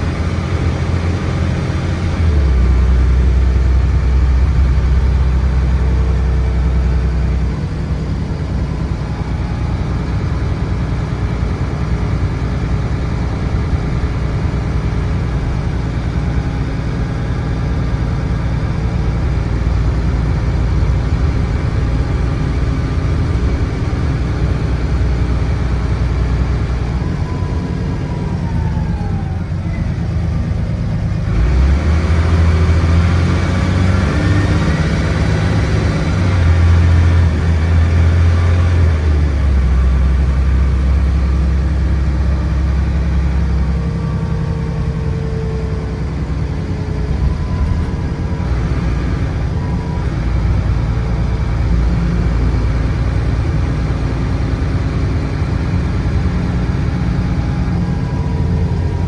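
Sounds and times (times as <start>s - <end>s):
bus diesel engine: 0.0s - 59.0s
gearbox whine: 43.3s - 52.4s.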